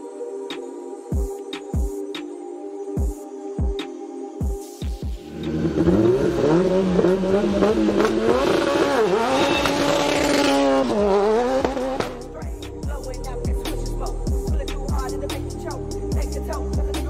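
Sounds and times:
racing car engine revving: 5.2 - 12.4.

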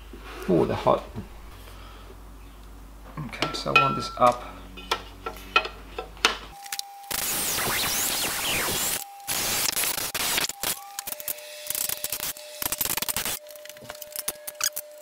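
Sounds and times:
drill whining into metal: 6.7 - 13.4.

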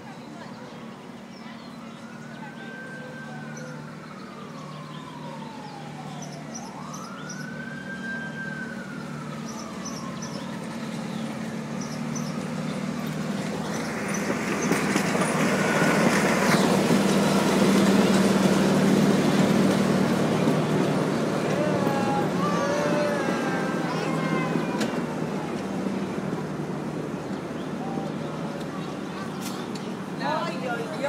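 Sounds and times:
distant siren wailing: 1.7 - 28.7
miniature train passing: 8.8 - 31.0.

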